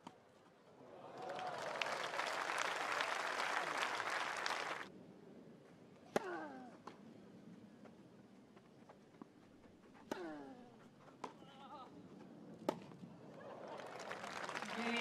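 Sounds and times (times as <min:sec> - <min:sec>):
crowd applause: 0:00.9 - 0:04.9, 0:13.4 - 0:15.0.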